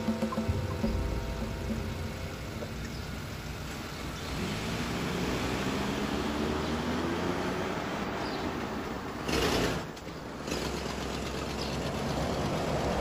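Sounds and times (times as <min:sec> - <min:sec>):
engine running steadily: 0:00.0 - 0:13.0
wash of noise: 0:00.4 - 0:08.2.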